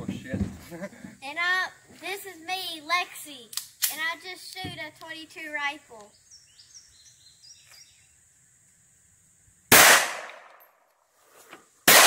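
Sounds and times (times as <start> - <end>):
pistol shot echoing: 9.7 - 10.6.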